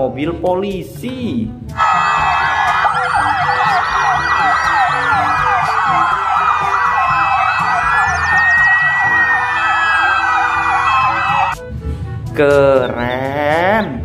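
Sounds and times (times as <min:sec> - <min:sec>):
wailing siren: 0:01.8 - 0:11.6
yelping police sirens: 0:01.8 - 0:11.6.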